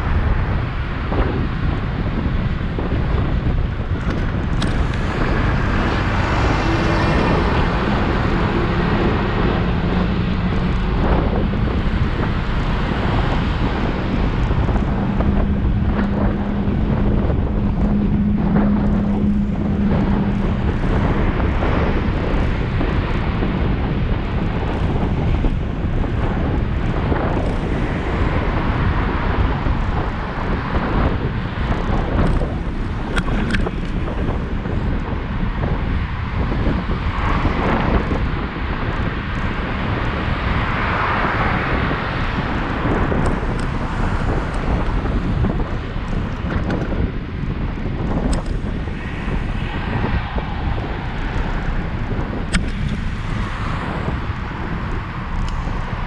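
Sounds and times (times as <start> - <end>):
wind buffeting microphone: 0.0 - 56.0
low hum: 3.2 - 36.1.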